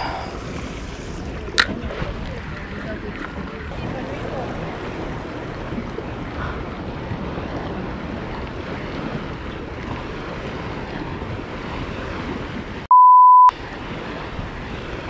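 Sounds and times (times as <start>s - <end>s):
wind noise on microphone: 0.0s - 12.8s
sea lapping: 0.0s - 12.9s
censor bleep: 12.9s - 13.5s.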